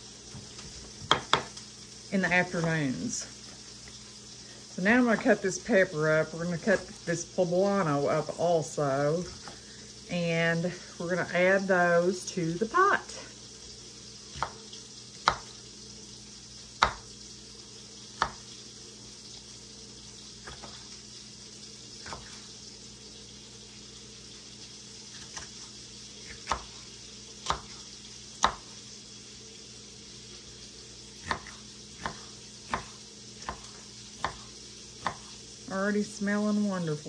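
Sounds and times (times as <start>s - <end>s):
onions sizzling in pan: 0.0s - 37.0s
knife hitting cutting board: 1.1s - 1.5s, 14.4s - 14.6s, 15.2s - 15.6s, 16.8s - 17.0s, 31.2s - 35.3s.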